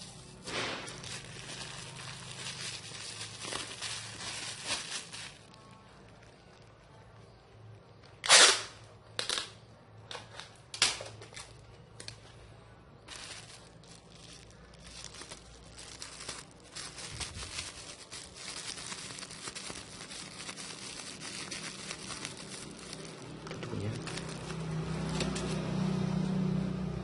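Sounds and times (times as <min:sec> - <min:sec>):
plastic wrapping crinkling: 0:00.2 - 0:08.6, 0:13.0 - 0:25.7
packing material tearing: 0:00.3 - 0:06.8, 0:08.2 - 0:09.5, 0:13.1 - 0:25.7.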